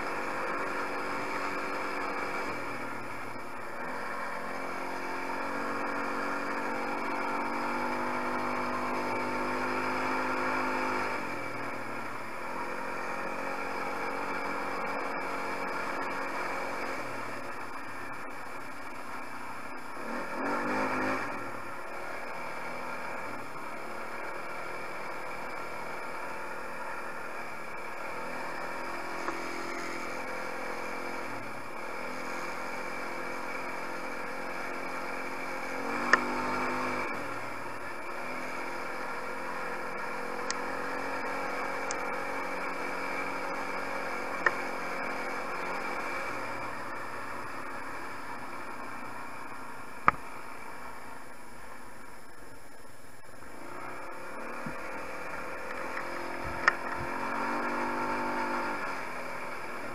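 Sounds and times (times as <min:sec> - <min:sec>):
quad bike engine revving: 0:00.0 - 0:50.8, 0:53.4 - 0:59.9.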